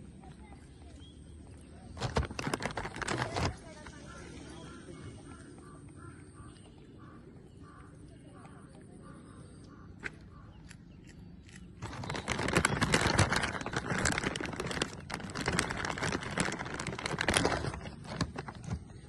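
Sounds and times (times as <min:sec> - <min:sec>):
plastic packet crinkling: 0:02.0 - 0:03.8, 0:11.8 - 0:19.0.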